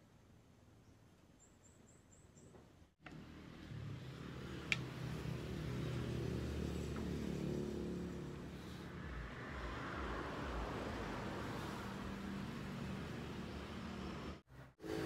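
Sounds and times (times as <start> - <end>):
vehicle engine humming: 3.0 - 15.0.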